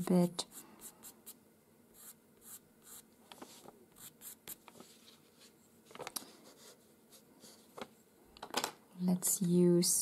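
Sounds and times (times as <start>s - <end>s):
pencil scratching on paper: 2.0s - 3.0s, 4.0s - 4.6s.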